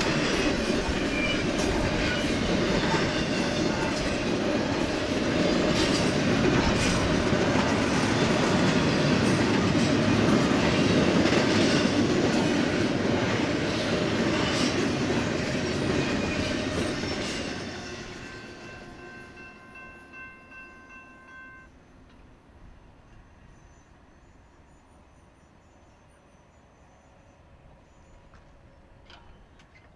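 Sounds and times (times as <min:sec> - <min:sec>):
wheels clacking over rail joints: 0:00.0 - 0:18.8
freight train rumbling past: 0:00.0 - 0:29.9
crossing bell ringing: 0:16.0 - 0:21.8.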